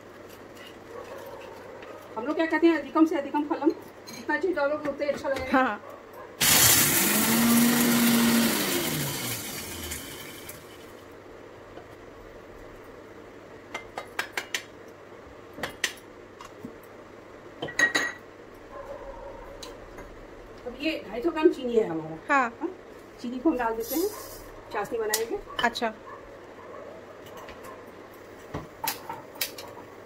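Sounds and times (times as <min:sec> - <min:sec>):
motor spinning down: 0:06.4 - 0:10.6
mixer grinder running: 0:06.4 - 0:10.9.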